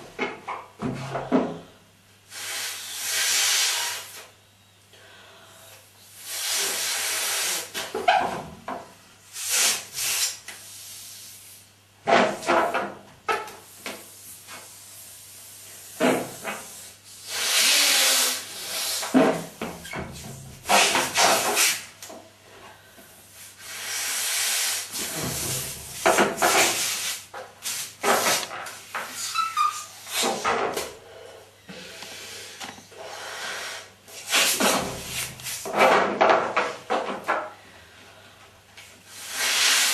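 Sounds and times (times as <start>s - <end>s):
breaths blowing into balloon: 2.3s - 4.3s, 6.2s - 7.8s, 15.0s - 19.3s, 23.5s - 25.8s, 39.1s - 39.9s.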